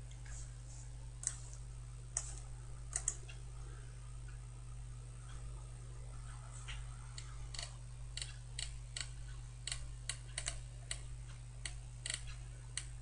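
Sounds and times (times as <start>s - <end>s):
low steady hum: 0.0s - 13.0s
computer mouse clicking: 2.2s - 3.2s, 6.7s - 12.9s.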